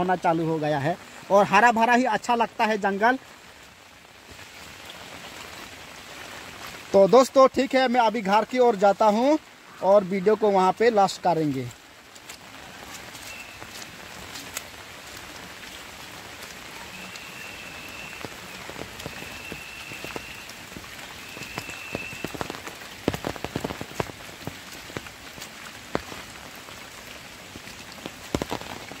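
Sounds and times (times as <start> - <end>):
rain pattering on leaves: 0.0 - 29.0
thin high call: 13.2 - 13.9, 16.7 - 22.5
sharp taps and crackles: 18.2 - 26.2, 27.6 - 29.0.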